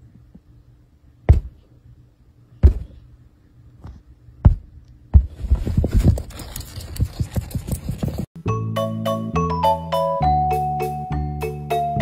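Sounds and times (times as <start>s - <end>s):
dull thumps: 1.3s - 1.7s, 2.6s - 3.1s, 3.8s - 6.1s.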